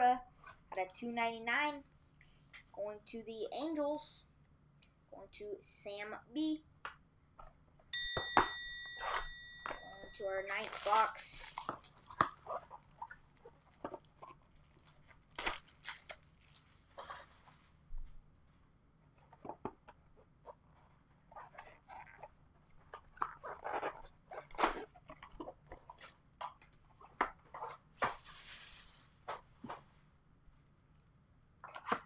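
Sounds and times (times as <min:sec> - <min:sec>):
wrapper crinkling and tearing: 0:10.4 - 0:17.3.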